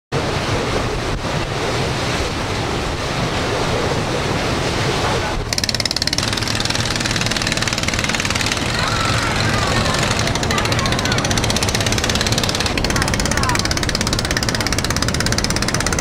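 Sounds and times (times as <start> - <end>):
ship's wake rushing: 0.1 - 16.0
small boat engine rattling: 0.2 - 16.0
wind buffeting microphone: 0.2 - 16.0.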